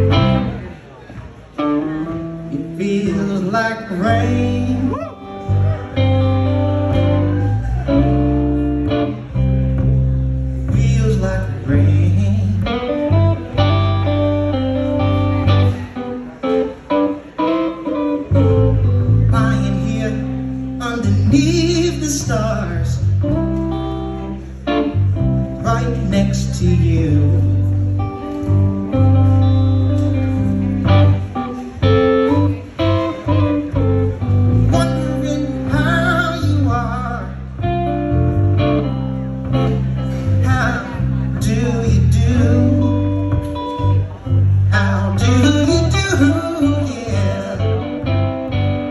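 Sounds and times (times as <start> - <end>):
electric guitar: 0.0 - 48.9
drums and bass: 1.2 - 16.0, 18.3 - 48.9
man singing: 2.5 - 5.8, 10.5 - 13.7, 19.1 - 23.4, 25.5 - 27.9, 34.7 - 37.7, 39.7 - 44.0, 44.7 - 48.2.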